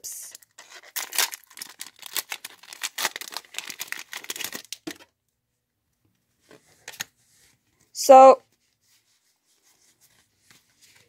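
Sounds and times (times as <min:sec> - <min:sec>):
foil wrapper crinkling: 0:00.8 - 0:05.0.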